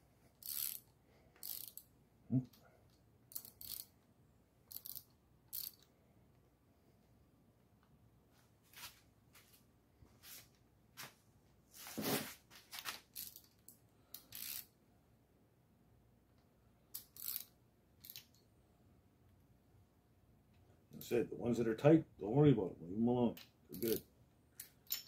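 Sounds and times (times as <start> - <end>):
metallic clicks and rattles: 24.6 - 25.0.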